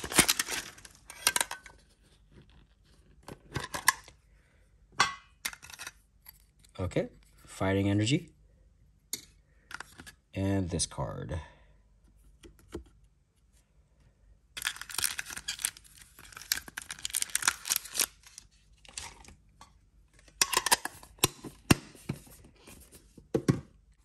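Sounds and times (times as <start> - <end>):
foil wrappers crinkling: 0.0 - 1.5, 14.6 - 19.2.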